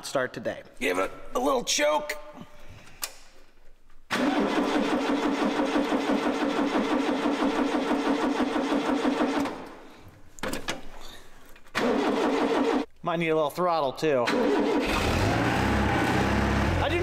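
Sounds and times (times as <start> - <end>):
engine cranking on starter: 4.1 - 9.6, 11.7 - 12.9, 14.3 - 17.0.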